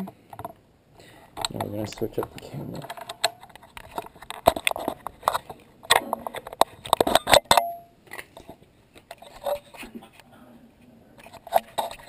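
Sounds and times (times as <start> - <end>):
camera handling clicks and rubbing: 1.4 - 9.9, 11.2 - 12.0.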